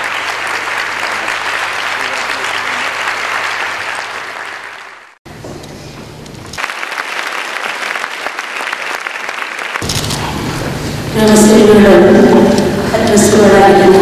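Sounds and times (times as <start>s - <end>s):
audience applauding: 0.0s - 5.2s, 6.6s - 9.9s.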